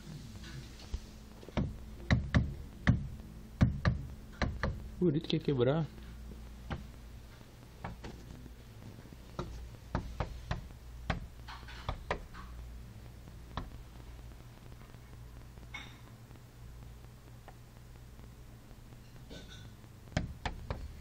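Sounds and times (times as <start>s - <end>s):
bird tapping bill on window glass: 1.5s - 4.9s, 6.6s - 6.9s, 9.4s - 12.6s, 20.1s - 21.0s.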